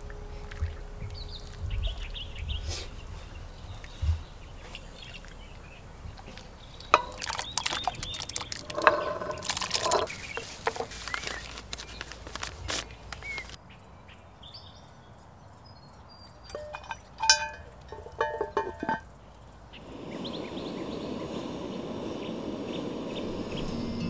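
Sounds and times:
liquid pouring and trickling: 6.1 - 12.5.

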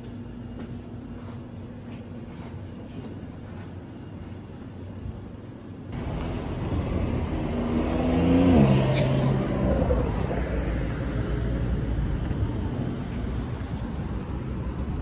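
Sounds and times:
vehicle passing by: 6.0 - 15.0.

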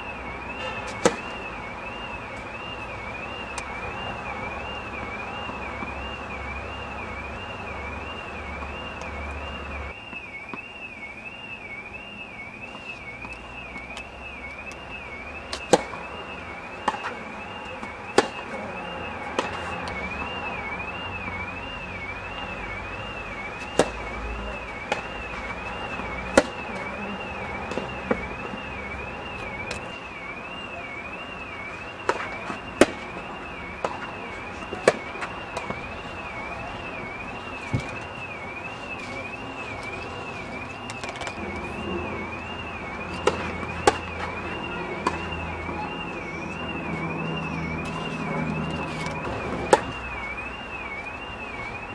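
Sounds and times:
racket hitting tennis ball: 0.8 - 1.3, 15.5 - 16.0, 16.8 - 17.1, 18.1 - 18.4, 23.6 - 24.0, 26.4 - 26.6, 32.1 - 33.0, 43.1 - 44.1
tennis ball bouncing: 0.9 - 1.3, 15.5 - 16.0, 16.8 - 17.1, 18.1 - 18.4, 19.4 - 19.7, 23.6 - 24.0, 25.9 - 26.6.

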